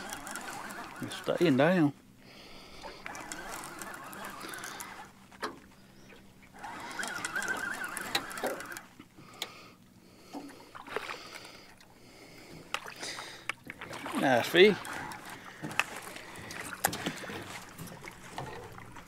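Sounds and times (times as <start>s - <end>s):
fishing reel cranking: 0.0s - 1.9s, 2.6s - 5.2s, 6.5s - 9.5s, 14.0s - 17.5s
water slapping boat hull: 0.0s - 9.4s, 10.2s - 19.0s.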